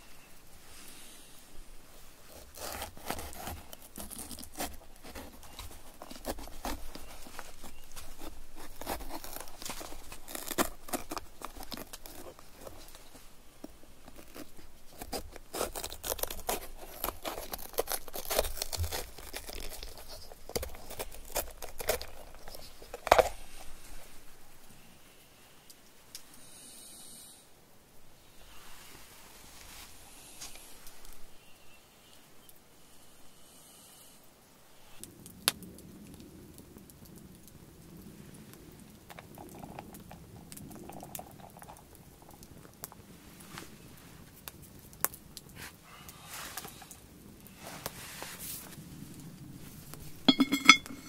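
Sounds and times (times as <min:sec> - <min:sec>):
knife cutting pepper crunching: 0:02.4 - 0:12.9, 0:14.1 - 0:23.5.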